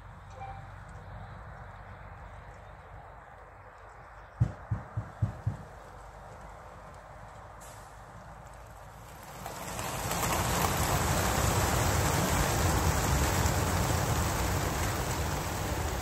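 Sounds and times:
pigeon wingbeats whirring: 9.2 - 16.0.

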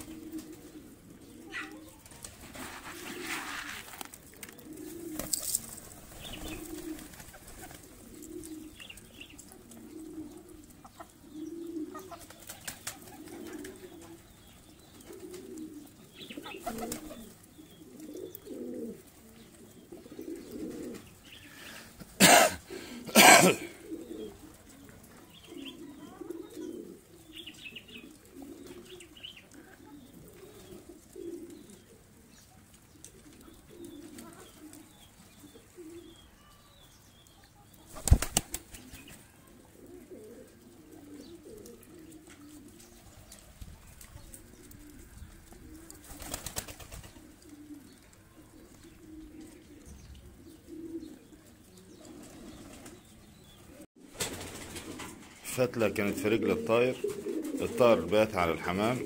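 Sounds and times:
pigeons cooing: 0.0 - 59.0
wings flapping: 1.6 - 9.5, 12.0 - 14.2, 15.0 - 17.4, 37.8 - 39.3, 41.6 - 47.4, 52.1 - 53.0, 54.0 - 55.4.

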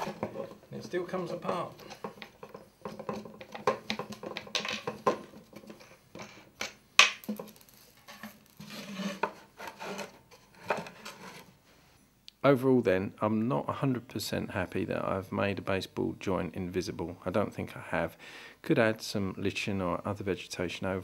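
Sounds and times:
wooden boards scraping: 0.0 - 6.6, 7.2 - 11.5
wooden boards knocking: 0.0 - 7.6.

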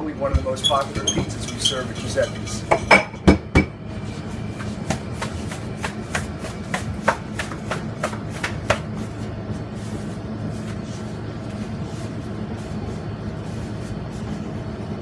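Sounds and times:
hands slapping pizza dough: 4.5 - 14.8.

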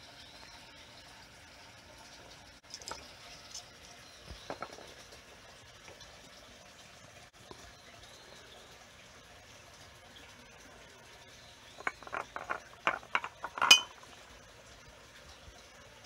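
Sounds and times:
turtle shell scrapes and knocks: 11.8 - 14.0.

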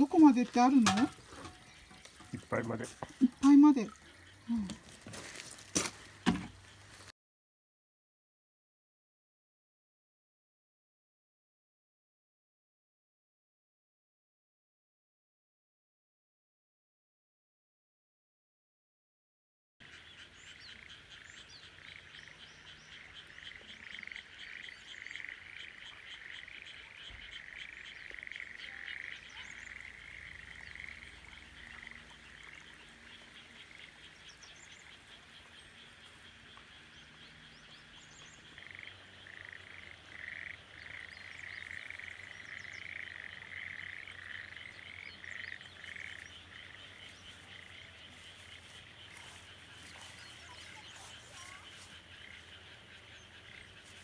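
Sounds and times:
frogs croaking in pulsed runs: 0.0 - 6.9, 19.8 - 54.0.

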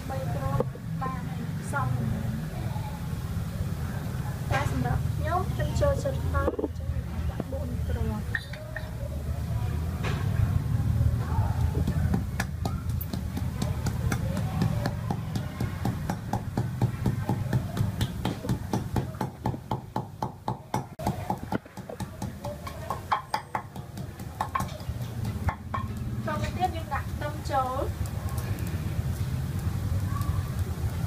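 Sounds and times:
pestle pounding in a mortar: 11.8 - 26.0.

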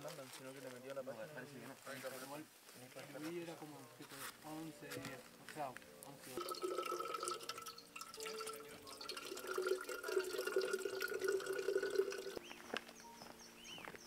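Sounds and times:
ringing tone from bottle: 6.4 - 12.4
water gurgling into a bottle: 6.4 - 12.4.

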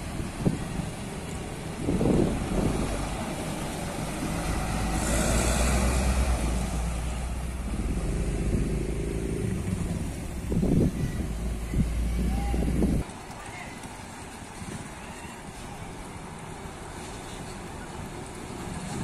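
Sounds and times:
truck diesel engine passing: 0.0 - 14.8.

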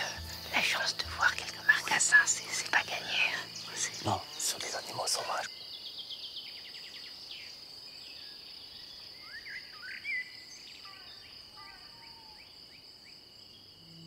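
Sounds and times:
bird chirping: 0.0 - 12.6
high-pitched insect trill: 0.0 - 14.0.

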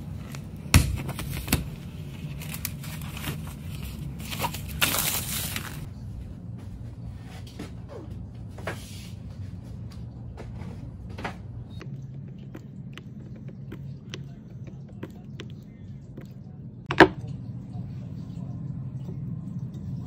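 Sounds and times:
steady low hum: 0.0 - 20.0
painting gear clicks and taps: 11.8 - 17.1.

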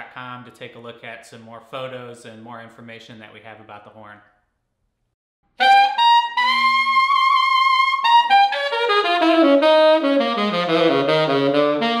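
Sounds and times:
solo tenor saxophone: 5.6 - 12.0.

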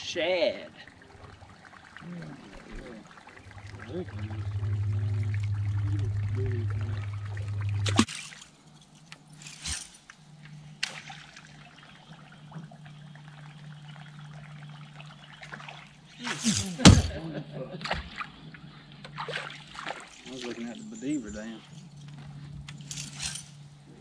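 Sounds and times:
water trickling: 0.0 - 8.8, 10.3 - 16.8
electric motor humming: 3.5 - 8.1.

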